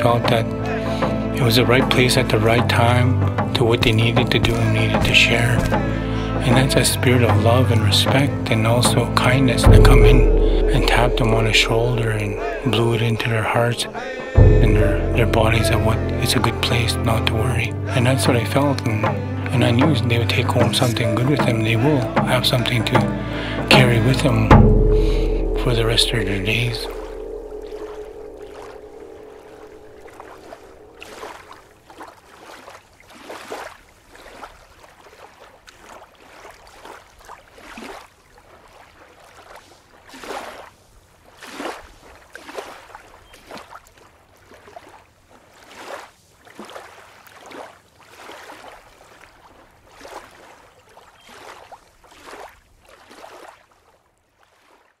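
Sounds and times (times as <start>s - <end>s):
water lapping and splashing: 0.0s - 55.0s
faint low rumble: 9.6s - 16.2s, 23.4s - 31.4s.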